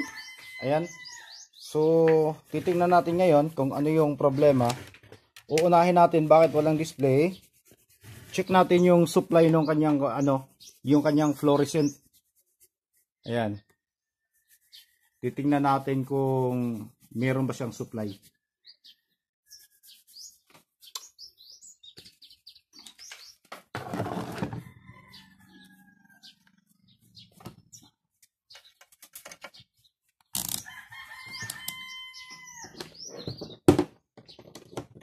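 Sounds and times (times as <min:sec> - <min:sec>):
rooster crowing: 0:00.0 - 0:01.5, 0:24.6 - 0:26.4, 0:30.6 - 0:32.8
small birds chirping: 0:00.0 - 0:23.7, 0:24.6 - 0:35.0.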